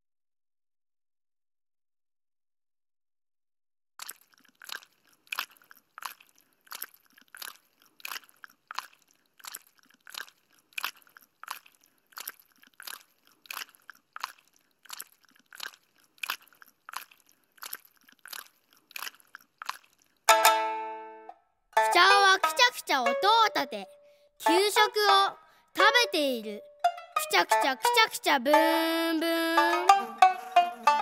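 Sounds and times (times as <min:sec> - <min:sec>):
gum chewing: 0:04.0 - 0:20.5, 0:21.8 - 0:23.8, 0:24.4 - 0:26.1, 0:26.9 - 0:31.0.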